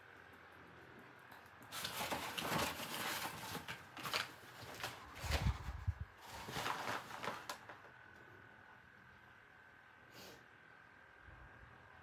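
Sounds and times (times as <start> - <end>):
dog tearing paper: 1.7 - 5.6, 6.2 - 7.7.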